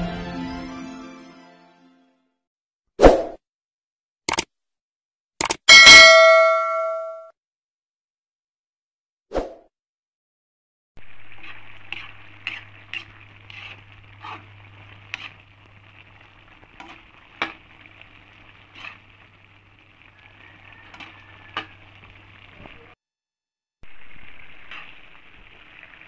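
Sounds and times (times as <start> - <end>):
meat sizzling in a pan: 11.0 - 23.0, 23.9 - 26.0
metal ladle scraping a pan: 11.1 - 22.2.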